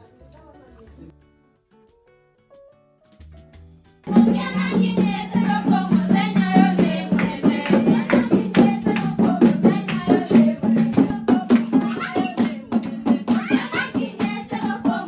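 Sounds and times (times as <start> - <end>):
drum strokes: 3.1 - 15.0
group singing together: 4.1 - 15.0
hand claps: 6.2 - 14.8.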